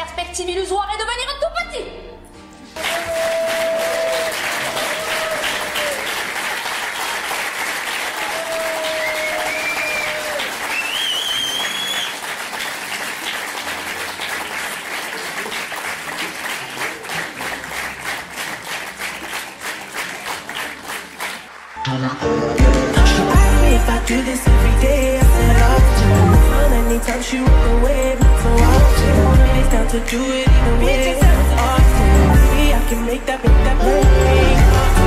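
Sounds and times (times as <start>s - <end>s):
crowd cries: 2.8s - 13.1s
rhythmic clapping in unison: 2.8s - 22.0s, 22.6s - 35.0s
audience applauding: 2.8s - 22.2s.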